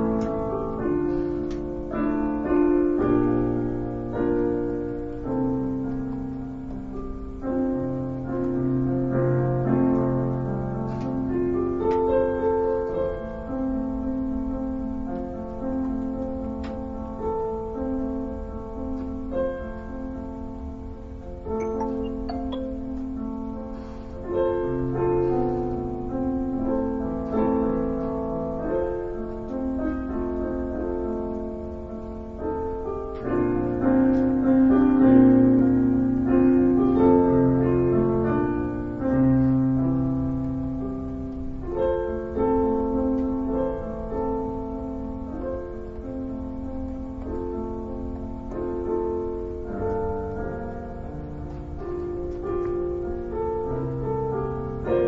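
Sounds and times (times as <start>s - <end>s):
solo piano chords: 0.0s - 55.0s.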